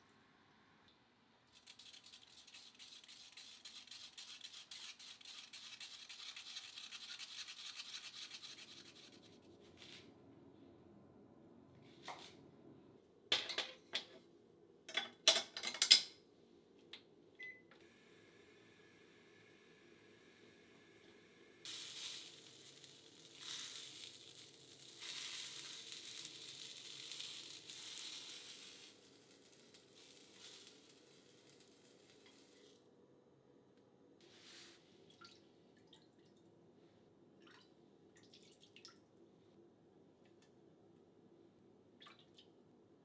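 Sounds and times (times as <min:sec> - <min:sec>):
leek sizzling in frying pan: 0:21.6 - 0:32.8.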